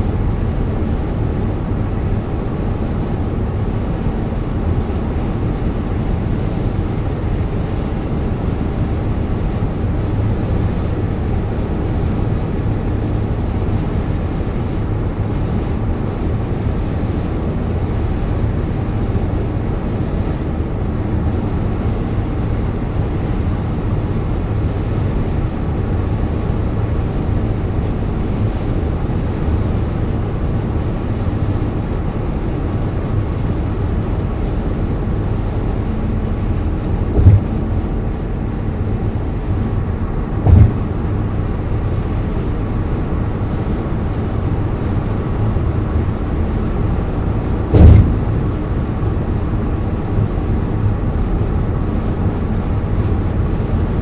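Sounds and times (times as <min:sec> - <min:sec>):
car road and engine rumble: 0:00.0 - 0:54.0
short thumps: 0:37.0 - 0:37.9, 0:40.4 - 0:41.0, 0:47.7 - 0:48.6.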